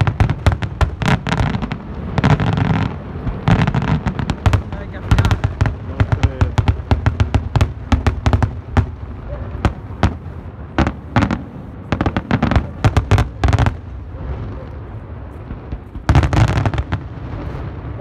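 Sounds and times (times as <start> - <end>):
fireworks bangs: 0.0 - 18.0.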